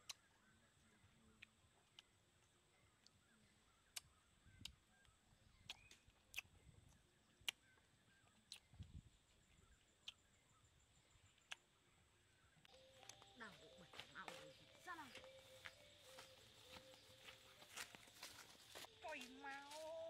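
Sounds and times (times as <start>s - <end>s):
mouth clicks and smacks eating: 0.0s - 0.3s, 3.9s - 9.0s, 9.8s - 10.3s, 11.2s - 11.7s.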